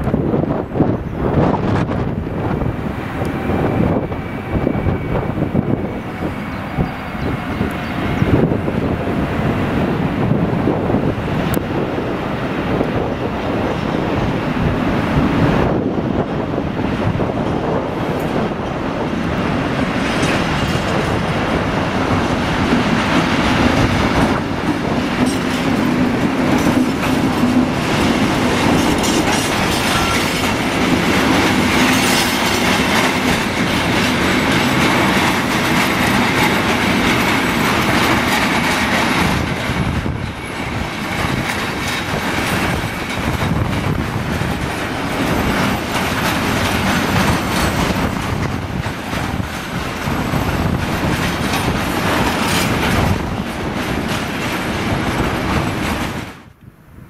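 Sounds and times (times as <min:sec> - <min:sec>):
freight train rumbling: 0:00.0 - 0:57.0
wheels clattering over rail joints: 0:17.0 - 0:56.5.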